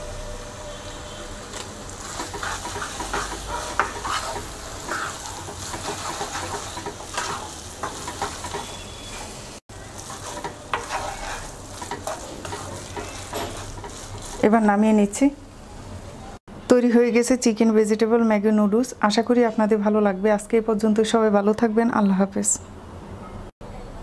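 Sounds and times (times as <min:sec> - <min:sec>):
noodles sizzling: 0:00.0 - 0:16.4
spatula scraping a wok: 0:01.5 - 0:14.9.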